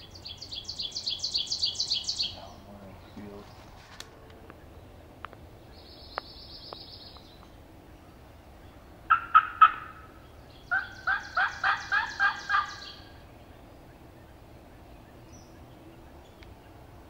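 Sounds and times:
songbird trilling: 0.0 - 3.8, 4.5 - 16.8
turkey call yelps by mouth: 9.1 - 10.1, 10.7 - 12.9.

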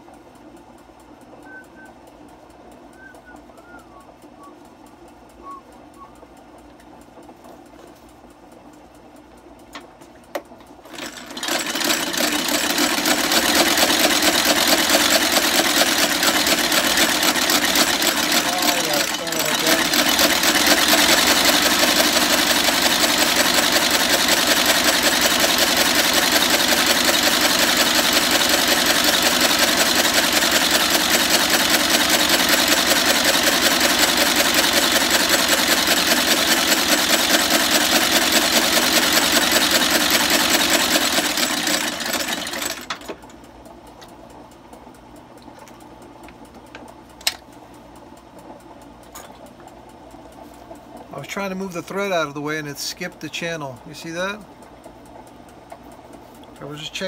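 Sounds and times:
stitching machine clattering: 10.8 - 43.4.

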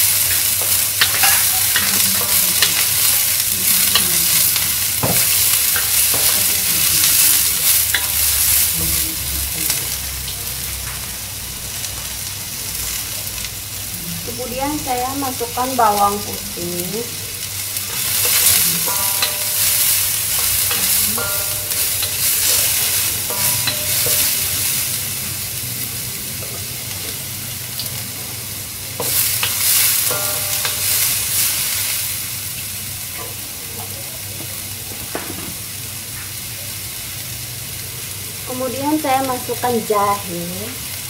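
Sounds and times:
spatula scraping wok: 0.0 - 10.0, 17.4 - 27.2, 29.0 - 32.3
onion sizzling in hot oil: 0.0 - 41.0.

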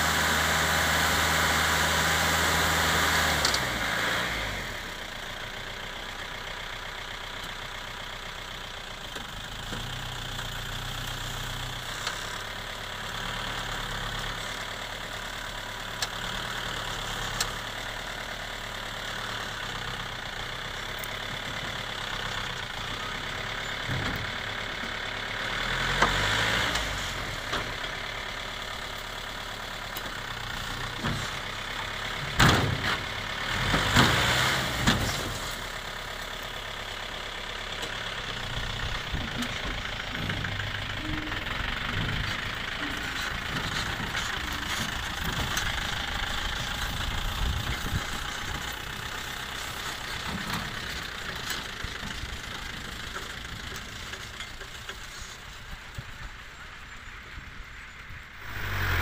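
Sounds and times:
diesel truck engine idling: 0.0 - 33.7, 35.2 - 59.0.

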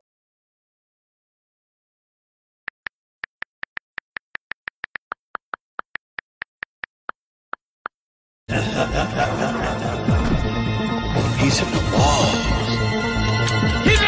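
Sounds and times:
phone keyboard typing clicks: 2.7 - 8.0
loud music: 8.5 - 14.0.

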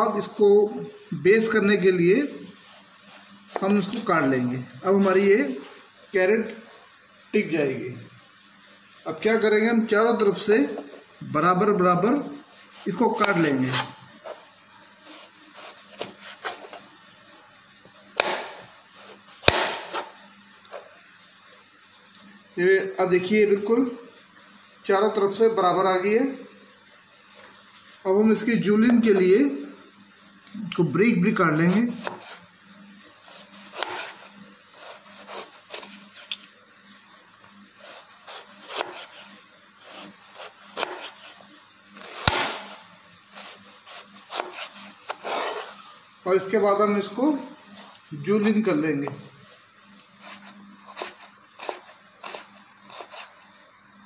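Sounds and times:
knife cutting carrot on board: 2.6 - 4.1, 12.6 - 14.4, 15.0 - 16.8, 18.2 - 20.1, 31.7 - 32.4, 33.2 - 36.5, 37.8 - 41.4, 42.0 - 45.8, 50.2 - 53.4.

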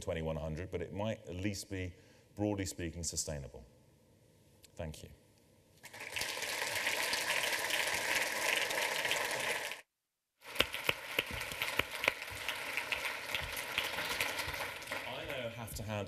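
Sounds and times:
audience applauding: 5.8 - 9.8, 10.4 - 15.6.

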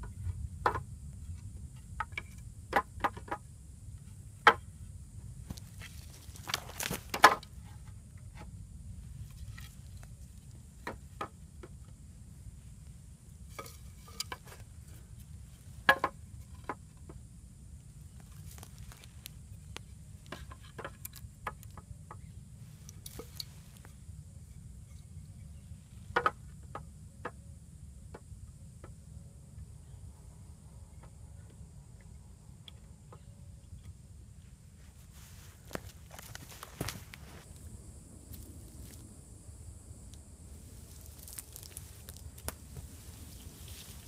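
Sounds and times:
dry twigs cracking and rustling: 5.5 - 7.5, 18.2 - 20.4, 35.7 - 37.6, 40.1 - 44.0.

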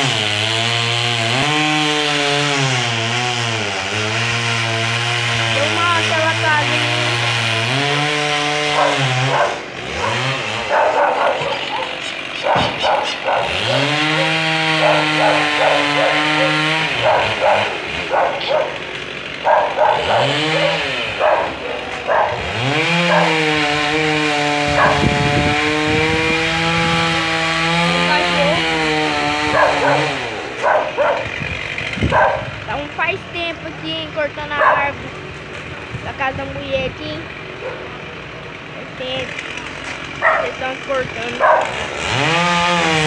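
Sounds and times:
chainsaw revving: 0.0 - 43.0
dog barking: 8.7 - 18.8, 19.4 - 23.4, 24.7 - 25.1, 29.5 - 31.3, 32.1 - 32.5, 34.6 - 35.0, 37.6 - 38.0, 40.2 - 40.6, 41.4 - 41.8.

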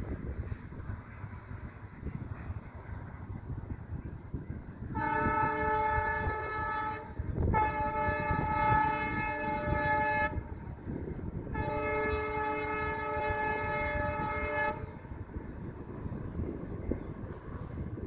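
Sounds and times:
locomotive air horn blasts: 4.9 - 10.6, 11.5 - 15.0.

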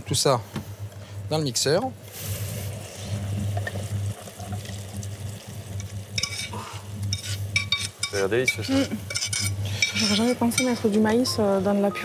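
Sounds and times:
pan sizzling and simmering: 1.7 - 12.0
utensils clinking against dishes: 7.1 - 11.3.

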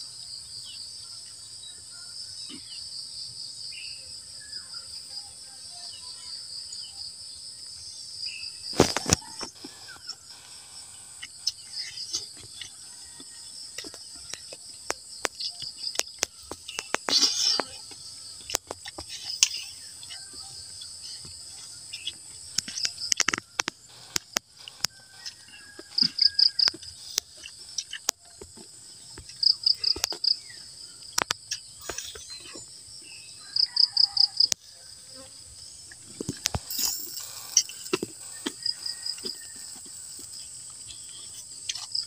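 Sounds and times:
crickets chirping chorus: 0.0 - 42.0
quick chirps: 35.9 - 40.4.

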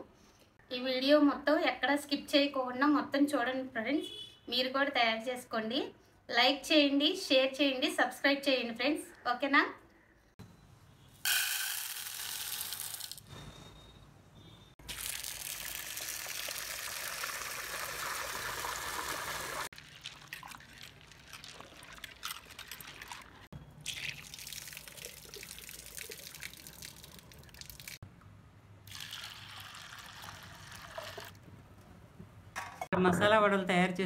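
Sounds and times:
water pouring into a bowl: 14.9 - 28.0, 28.9 - 31.4
lentils swished by hand in water: 19.7 - 23.5.

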